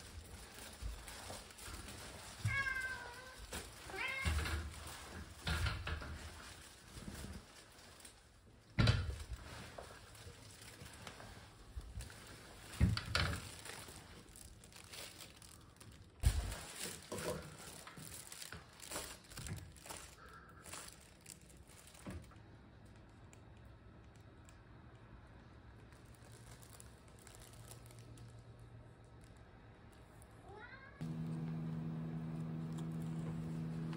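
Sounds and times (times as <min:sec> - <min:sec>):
faint steady hum: 0:31.0 - 0:33.9.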